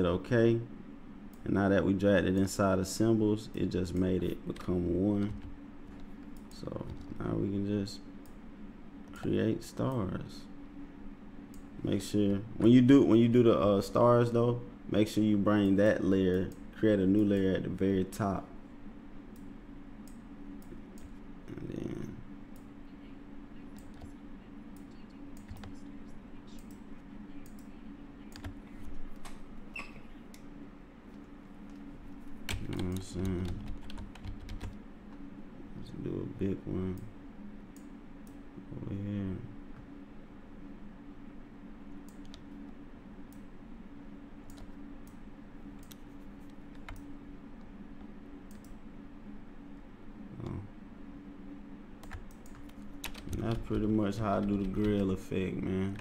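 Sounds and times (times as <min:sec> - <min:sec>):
steady low hum: 0:00.0 - 0:56.0
computer input clicks: 0:23.7 - 0:25.8
computer keyboard clicking: 0:24.8 - 0:25.8, 0:32.5 - 0:34.8, 0:44.5 - 0:45.2, 0:45.8 - 0:47.1, 0:52.0 - 0:55.0.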